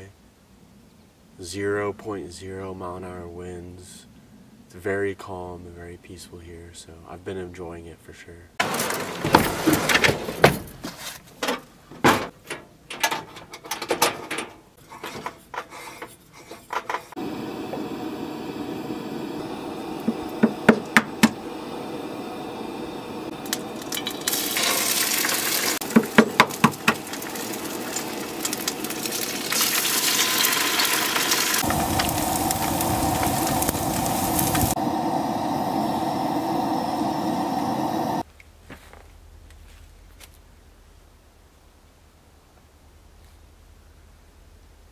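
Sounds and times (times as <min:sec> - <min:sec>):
frying pan sizzling: 0:08.6 - 0:09.9, 0:17.1 - 0:38.2
metal utensil scraping pan: 0:14.8 - 0:17.2.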